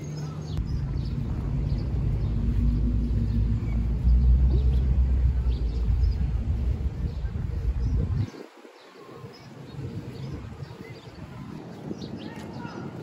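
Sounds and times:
vehicle engine rumbling: 0.0 - 8.3.

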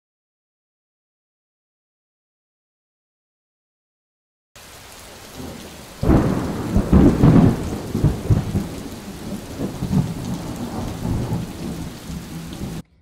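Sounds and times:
steady rain: 4.6 - 12.8
thunder rumbling: 5.1 - 12.9.

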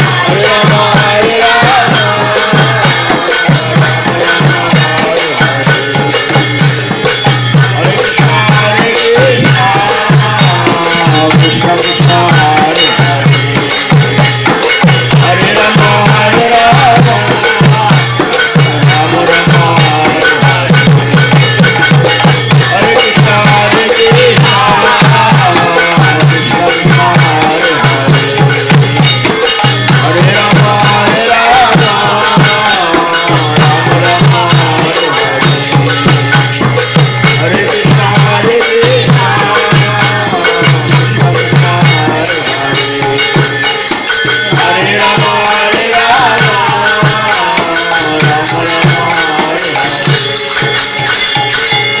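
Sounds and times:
second voice singing: 0.0 - 7.2, 7.8 - 36.2
hand cymbals jingling: 0.0 - 52.0
harmonium: 0.0 - 52.0
lead singer chanting: 0.0 - 52.0
pulsing drum beat: 0.0 - 52.0.

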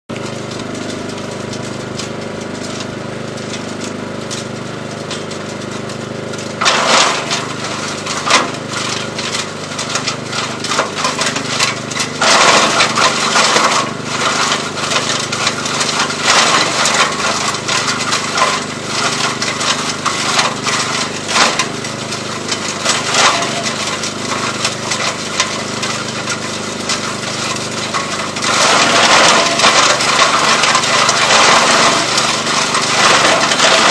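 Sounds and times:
garden chipper engine running: 0.1 - 33.9
branches cracking and splintering: 27.6 - 33.9.

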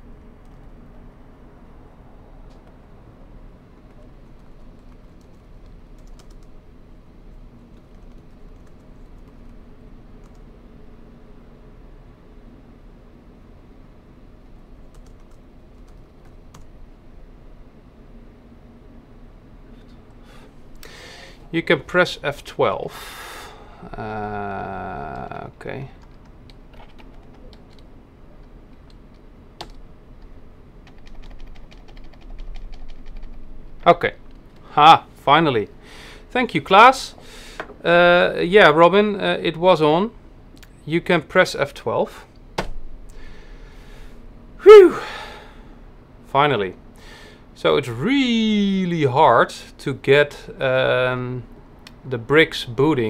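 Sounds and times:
steady low hum: 0.0 - 53.0
computer keyboard typing: 3.9 - 6.5, 7.7 - 9.5, 14.9 - 16.7, 26.0 - 29.8, 30.8 - 33.5
keyboard keys clicking: 26.0 - 33.4.

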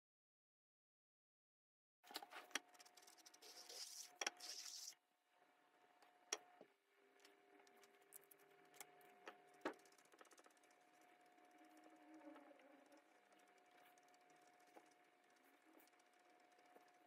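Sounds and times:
faint steady hum: 2.1 - 17.0
short scratchy hiss: 3.4 - 5.0.

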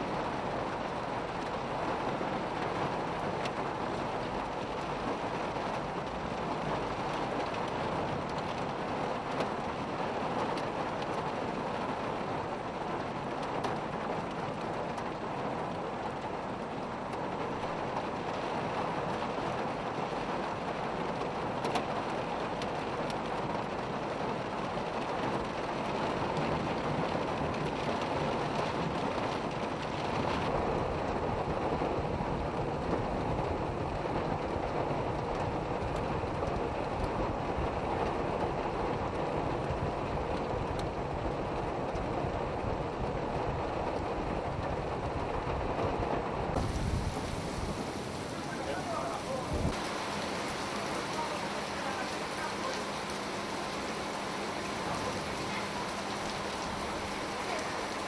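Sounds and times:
heavy rain pouring: 0.0 - 58.0
floodwater rushing: 16.4 - 20.6, 46.5 - 58.0.

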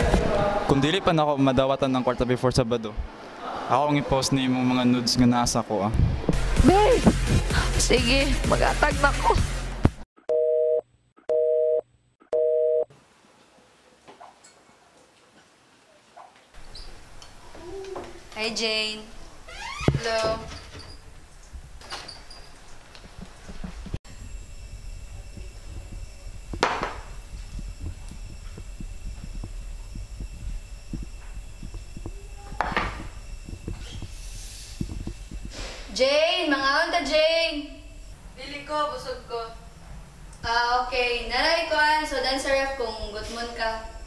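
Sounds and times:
telephone busy tone beeps: 10.3 - 11.8, 12.4 - 12.9
low room hum: 16.6 - 44.0.

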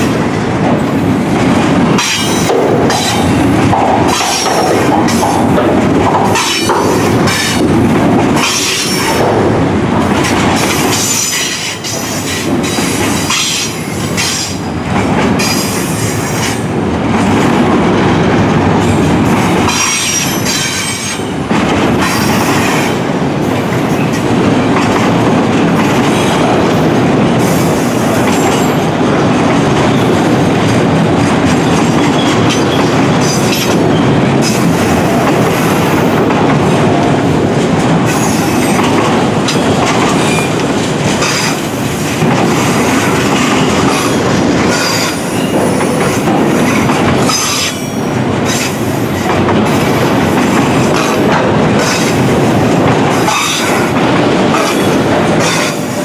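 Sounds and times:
steel wheels rumbling on rail: 0.0 - 56.0.

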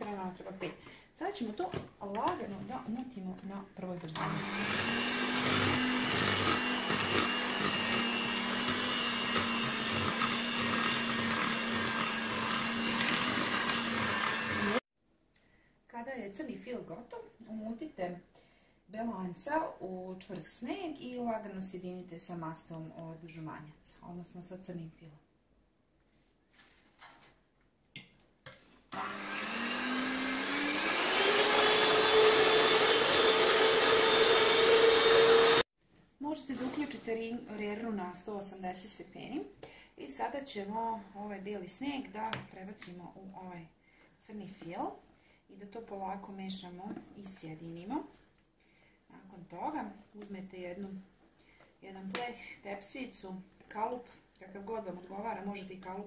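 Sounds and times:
electric hand mixer running: 4.2 - 14.8, 28.9 - 35.7.

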